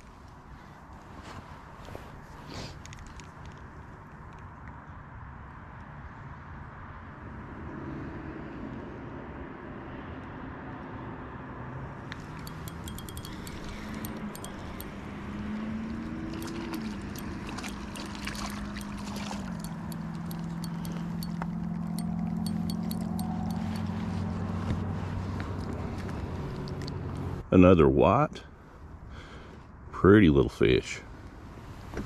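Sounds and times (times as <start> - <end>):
fishing reel clicking: 12.2 - 14.9, 16.4 - 21.4, 22.0 - 23.9.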